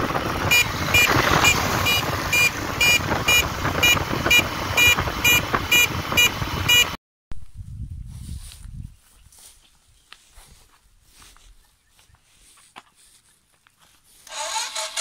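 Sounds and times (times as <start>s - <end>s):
motorcycle engine running: 0.0s - 7.0s
wind noise: 0.0s - 9.6s
motorcycle horn beeping: 0.4s - 7.0s.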